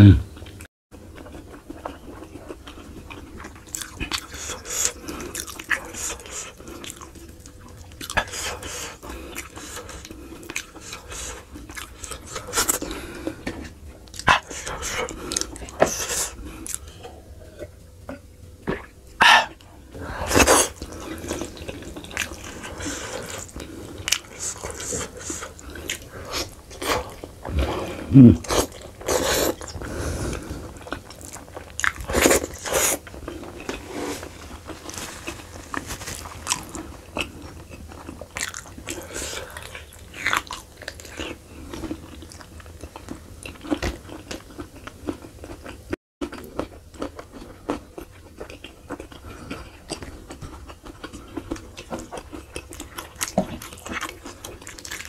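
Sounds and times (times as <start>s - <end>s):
wet chewing and smacking: 0.4s - 19.0s, 20.4s - 27.6s, 28.4s - 55.0s
bites and crunches: 30.8s - 55.0s.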